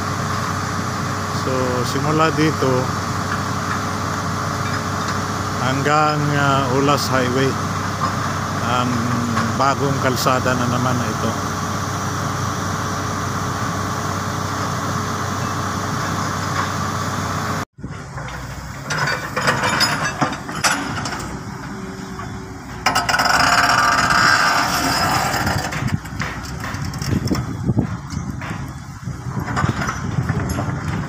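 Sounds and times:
excavator diesel engine: 0:00.0 - 0:31.0
excavator knocks and clanks: 0:17.8 - 0:31.0.

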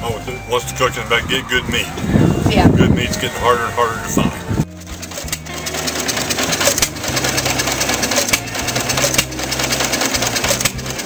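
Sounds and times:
stationary engine clattering: 0:04.6 - 0:11.0.

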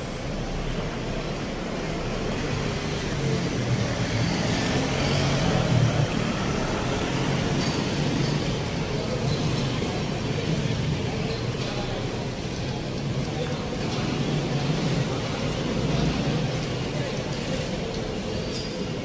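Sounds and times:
vans driving by: 0:00.0 - 0:19.0.

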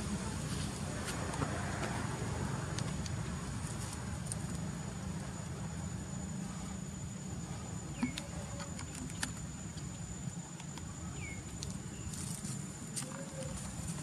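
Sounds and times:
steady low rumble: 0:00.0 - 0:14.0
thin steady high tone: 0:03.3 - 0:14.0.

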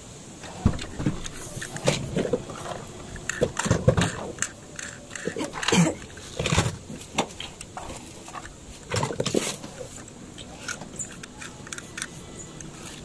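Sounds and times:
rustle: 0:00.0 - 0:13.0
toy truck handling clicks: 0:00.4 - 0:13.0.

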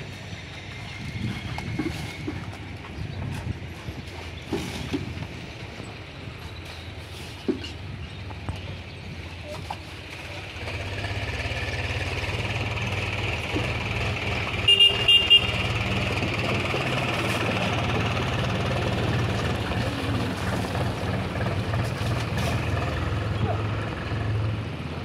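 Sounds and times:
vehicle engine running: 0:00.0 - 0:25.0
vehicle horn tooting: 0:14.6 - 0:16.0.

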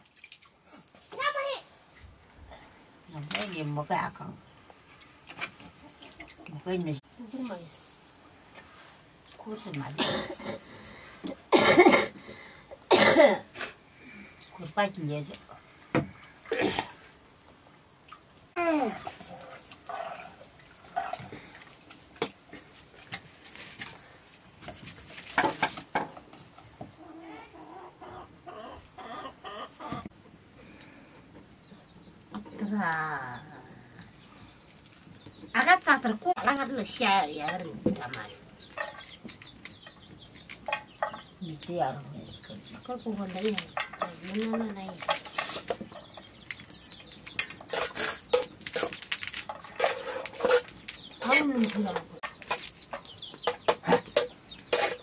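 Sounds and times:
leaves rustling: 0:00.0 - 0:10.0, 0:18.2 - 0:27.7, 0:41.4 - 0:45.8, 0:46.4 - 0:53.3
chicken clucking: 0:27.0 - 0:30.1
leafy greens snapping and tearing: 0:46.4 - 0:49.6.

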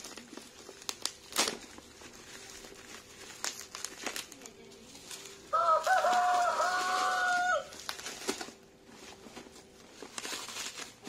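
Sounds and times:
bubble wrap and plastic crinkling: 0:00.0 - 0:11.0
rooster crowing: 0:05.5 - 0:07.9.

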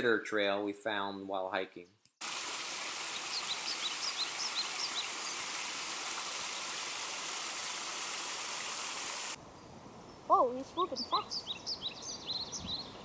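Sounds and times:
stream cascading over rocks: 0:02.2 - 0:09.4
bird chirps: 0:09.6 - 0:13.0.

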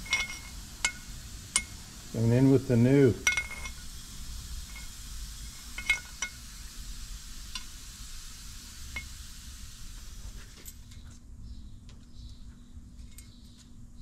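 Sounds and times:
light metallic clinks: 0:00.0 - 0:01.8, 0:03.2 - 0:03.9, 0:04.6 - 0:06.4, 0:13.0 - 0:13.5
faint hiss: 0:00.0 - 0:11.0.

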